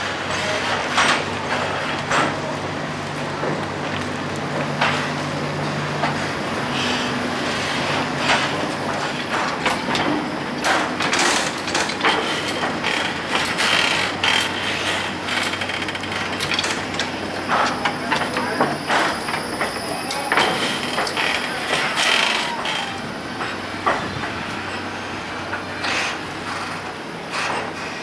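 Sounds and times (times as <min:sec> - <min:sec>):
tram electric drive humming: 0:00.0 - 0:28.0
wheels clanking over rail joints: 0:00.4 - 0:28.0
high wheel squeals: 0:17.3 - 0:23.4.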